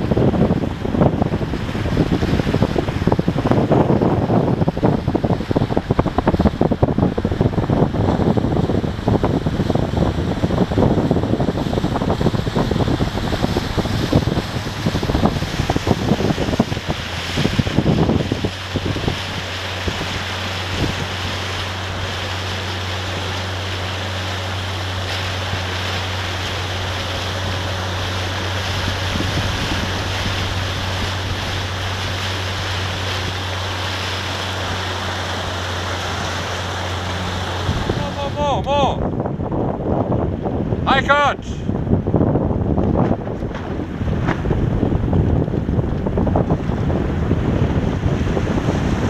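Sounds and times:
constant low hum: 0:00.0 - 0:49.0
wind buffeting microphone: 0:00.0 - 0:49.0
water hissing: 0:11.8 - 0:38.2.

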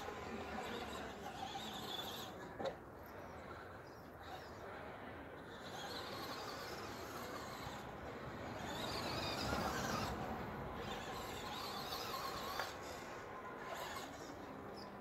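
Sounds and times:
electric motor whining: 0:05.4 - 0:14.8.

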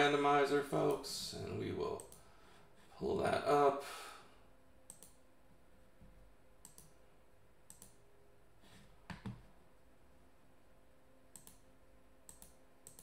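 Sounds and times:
computer mouse clicks: 0:02.0 - 0:02.2, 0:04.9 - 0:05.2, 0:06.6 - 0:07.0, 0:07.7 - 0:08.0, 0:11.3 - 0:13.0.

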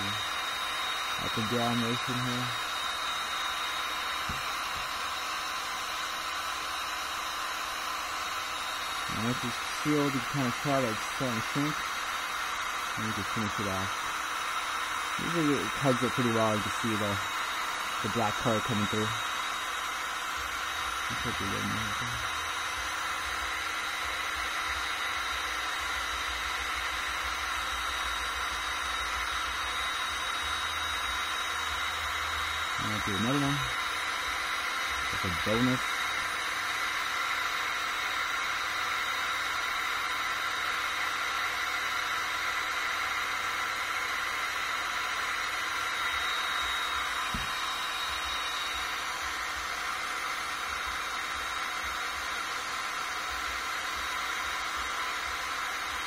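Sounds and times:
faint high whine: 0:00.0 - 0:14.1, 0:15.0 - 0:19.8
heat gun fan blowing air: 0:00.0 - 0:56.0.

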